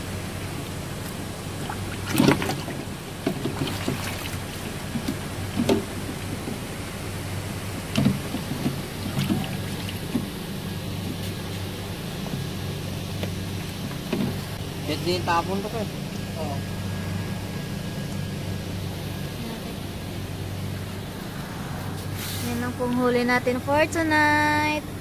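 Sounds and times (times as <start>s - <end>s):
steady low hum: 0.0s - 25.0s
hands sloshing in ice water: 1.6s - 6.0s.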